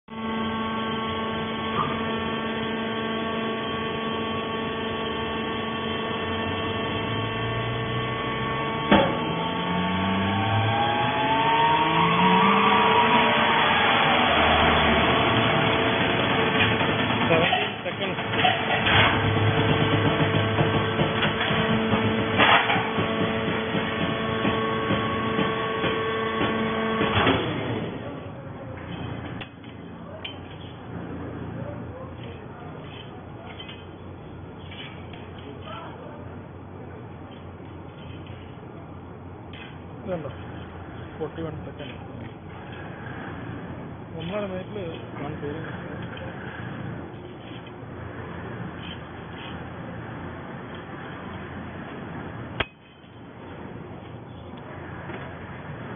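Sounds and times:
hydraulic power unit whining: 0.0 - 55.9
electric motor and pump humming: 0.1 - 55.9
rising tones: 3.6 - 17.3
hydraulic valve rush: 6.7 - 28.0.

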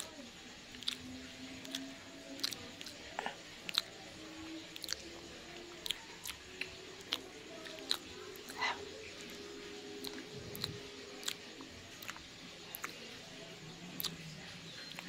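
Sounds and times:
close chewing of sticky food: 0.0 - 15.0
wet mouth clicks: 1.6 - 4.0, 4.8 - 5.0, 5.8 - 8.8, 10.0 - 13.0, 14.0 - 14.3.

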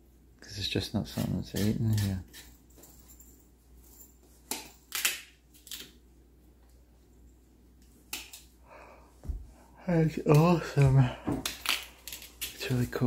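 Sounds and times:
knife cutting root: 1.1 - 2.5.

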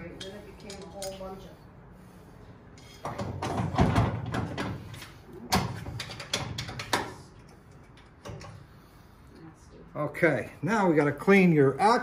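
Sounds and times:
metal tools knocking and clanking: 0.2 - 1.2, 5.5 - 8.6.

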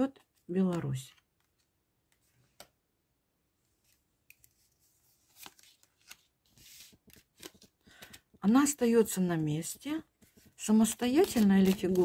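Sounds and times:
cards clicking and snapping: 11.1 - 12.0.

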